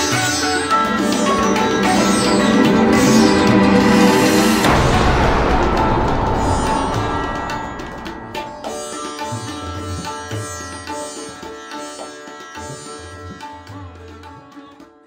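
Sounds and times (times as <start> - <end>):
plucked string melody: 0.0 - 14.8
low hand drum strokes: 0.8 - 10.0.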